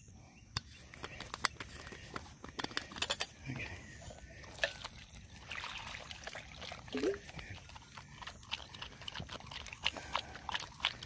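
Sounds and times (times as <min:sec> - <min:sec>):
water pouring into bowl: 0:04.5 - 0:11.0.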